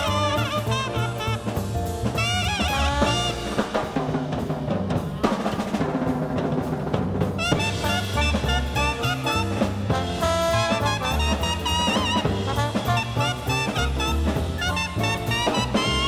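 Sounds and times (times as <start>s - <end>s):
trombone: 0.0s - 4.0s, 7.4s - 16.0s
trumpet: 0.0s - 4.0s, 7.4s - 16.0s
walking bass: 0.0s - 5.2s, 7.4s - 16.0s
jazz band playing: 0.0s - 16.0s.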